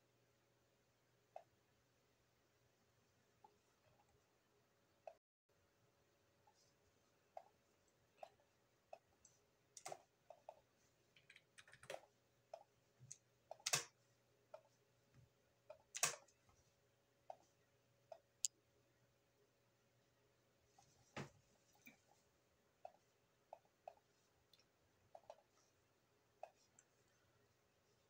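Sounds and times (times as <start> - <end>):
computer mouse clicking: 11.2 - 14.0, 15.7 - 16.3.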